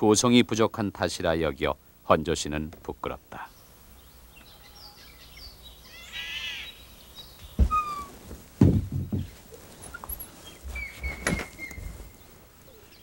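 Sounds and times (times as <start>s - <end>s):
small birds chirping: 2.4s - 13.0s
crow cawing: 5.9s - 6.7s
dull thumps: 7.5s - 12.0s.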